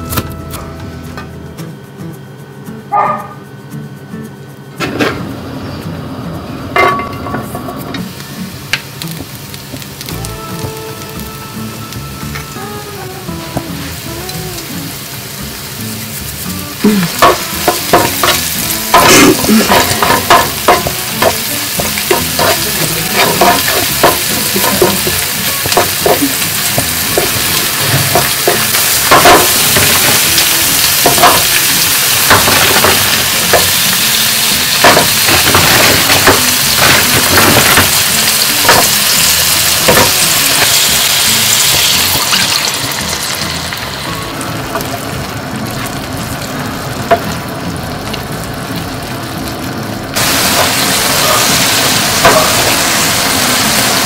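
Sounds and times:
garlic sizzling in oil: 8.0s - 54.0s
wooden spoon stirring in pan: 17.2s - 39.2s.

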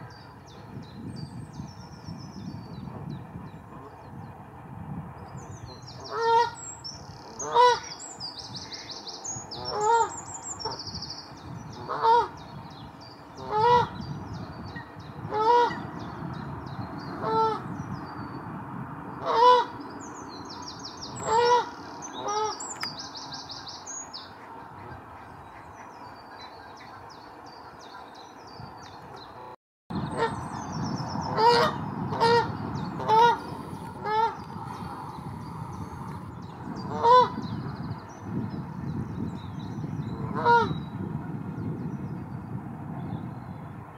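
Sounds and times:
small birds singing: 5.3s - 15.2s, 19.7s - 29.4s, 30.0s - 43.8s
geese honking: 7.4s - 7.9s, 21.2s - 22.6s, 31.3s - 34.4s, 36.9s - 37.4s.

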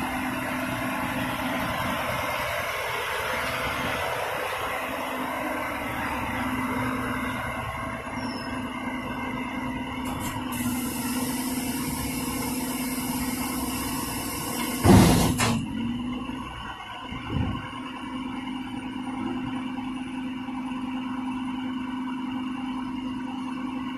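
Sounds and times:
garbage truck engine humming: 0.0s - 23.9s
loud metallic bang: 14.8s - 15.6s.

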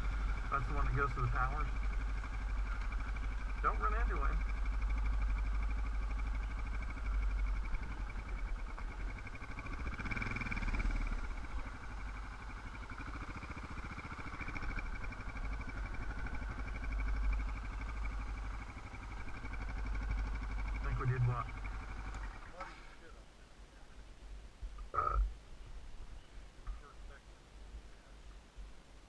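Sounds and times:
dirt bike engine idling: 0.0s - 28.7s.

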